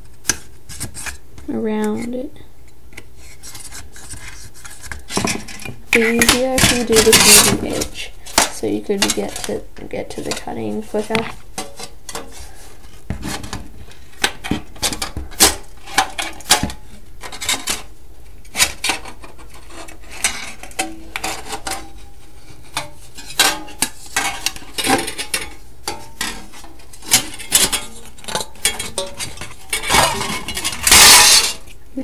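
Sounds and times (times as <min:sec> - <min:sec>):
sheet metal clinking and scraping: 0:05.2 - 0:12.4, 0:18.6 - 0:31.7.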